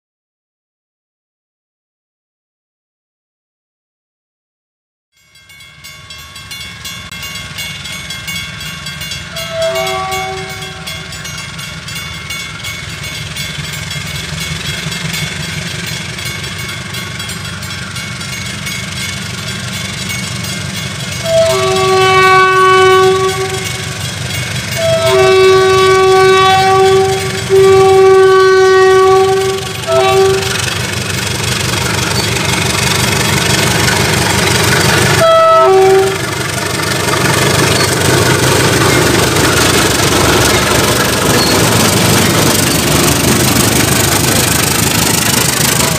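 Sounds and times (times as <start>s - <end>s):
locomotive engine rumble: 5.5s - 45.9s
train air horn blasts: 9.3s - 11.2s, 21.2s - 24.0s, 24.7s - 30.9s, 35.1s - 36.4s.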